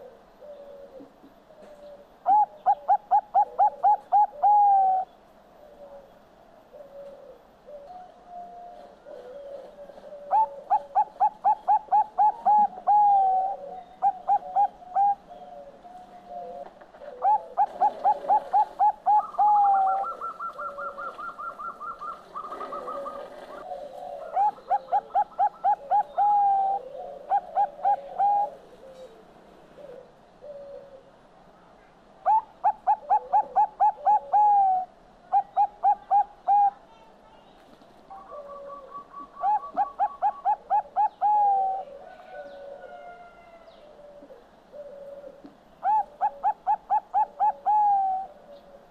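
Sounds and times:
dove cooing: 0.0s - 31.2s, 32.2s - 37.0s, 38.0s - 48.9s.

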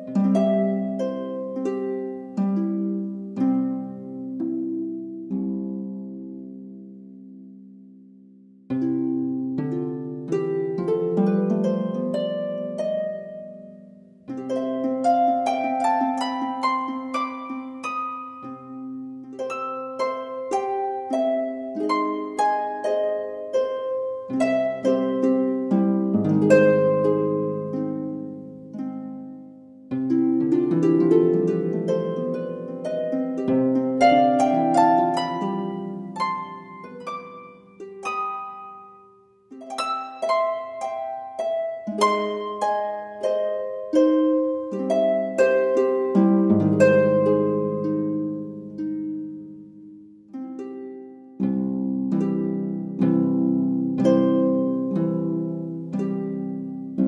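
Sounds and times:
plucked-string arpeggios: 8.7s - 57.0s.

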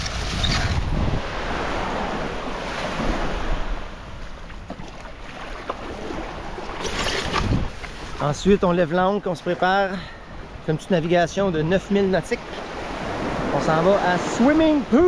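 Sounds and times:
wind on microphone: 0.0s - 4.4s, 6.1s - 7.8s
surf washing on beach: 0.0s - 15.0s.

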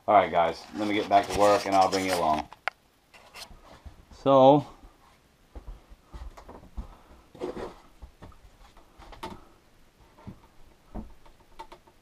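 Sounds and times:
light knocks and taps: 10.1s - 12.0s.

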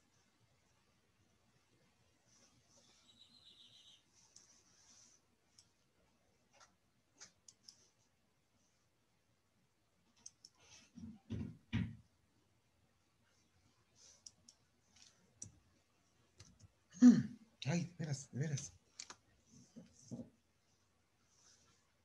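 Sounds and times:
faint clicks: 10.1s - 10.7s.

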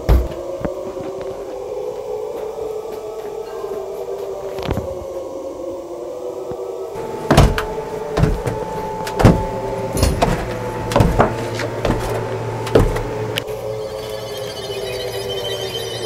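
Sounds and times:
eerie drone: 0.0s - 16.0s
heavy thuds: 7.0s - 13.4s.

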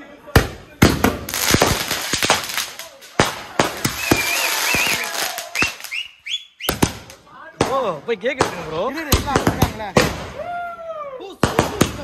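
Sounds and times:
fireworks bangs: 0.4s - 10.4s, 11.4s - 12.0s
fireworks crackling hiss: 1.1s - 6.0s
rising firework whistles: 3.8s - 6.9s.

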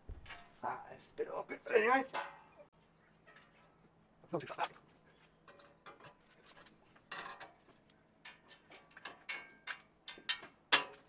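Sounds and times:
steel plate clinking and scraping: 0.2s - 0.6s, 2.0s - 2.7s, 5.4s - 11.0s.

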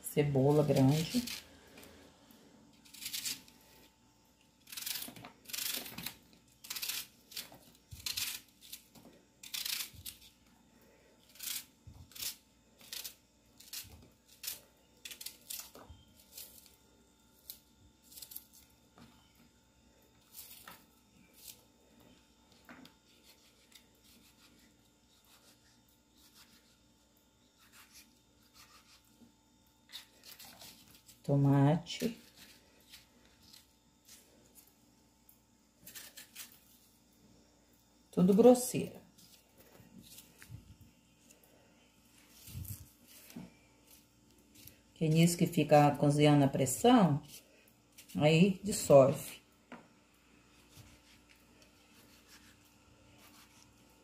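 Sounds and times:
knife cutting onion: 0.3s - 2.0s, 4.6s - 10.4s, 23.1s - 26.9s, 27.5s - 29.2s, 35.8s - 36.6s, 50.5s - 54.0s.

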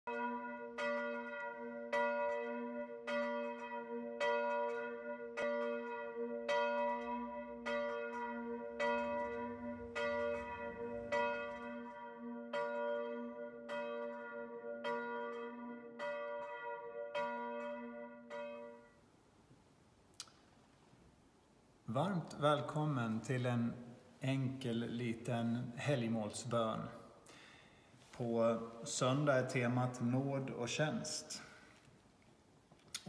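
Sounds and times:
church bell tolling: 0.1s - 19.0s, 28.2s - 31.6s.

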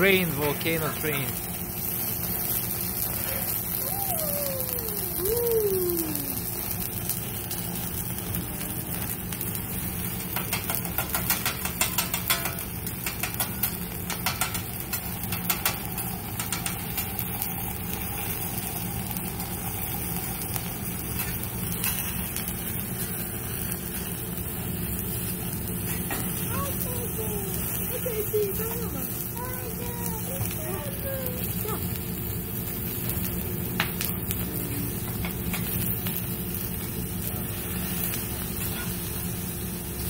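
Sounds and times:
food sizzling on griddle: 0.0s - 40.0s
metal utensils clacking on griddle: 0.1s - 1.3s, 10.2s - 17.4s, 21.1s - 22.5s, 25.9s - 26.9s, 35.0s - 36.2s.

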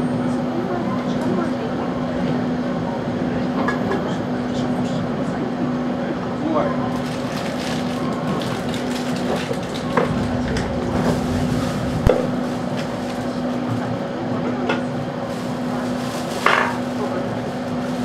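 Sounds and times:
train car humming: 0.0s - 18.0s.

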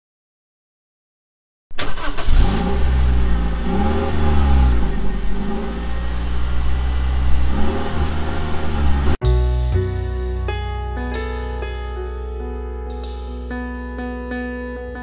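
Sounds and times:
vehicle engine while driving: 2.2s - 9.2s
piano music: 6.4s - 15.0s.

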